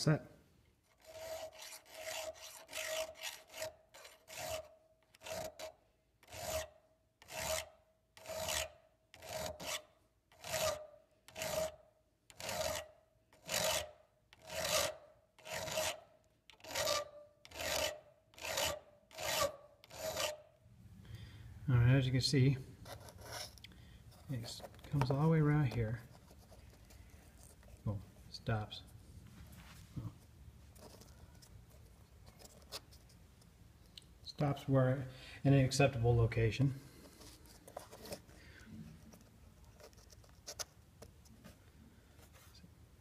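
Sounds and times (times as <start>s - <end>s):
file rasping on steel blade: 0.9s - 20.5s.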